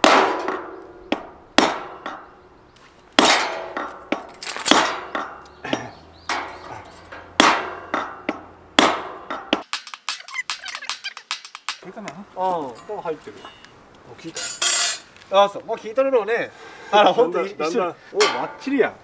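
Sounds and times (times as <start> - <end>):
hammer striking metal anchor: 0.0 - 2.3, 3.2 - 5.5, 6.3 - 10.0.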